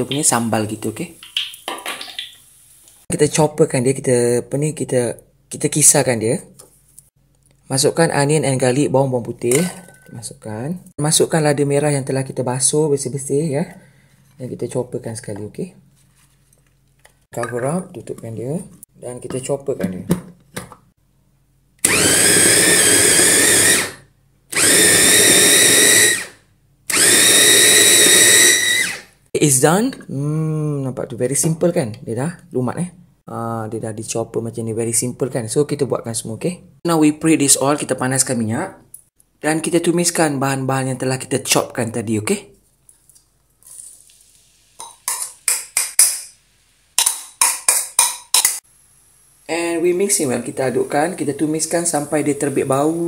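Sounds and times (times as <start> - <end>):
food sizzling in hot oil: 1.1 - 3.1, 43.6 - 45.5
electric food chopper whirring: 21.8 - 29.1.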